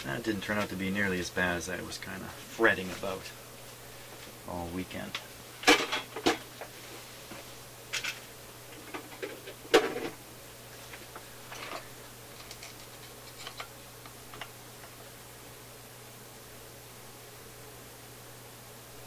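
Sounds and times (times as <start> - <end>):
low steady hum: 0.0 - 19.0
small parts clicking on metal: 12.4 - 14.5.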